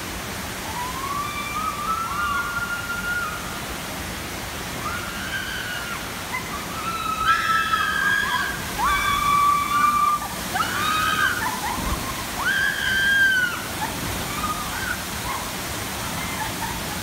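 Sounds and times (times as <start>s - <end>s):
water rushing down slide: 0.0s - 17.0s
riders screaming: 4.8s - 15.4s.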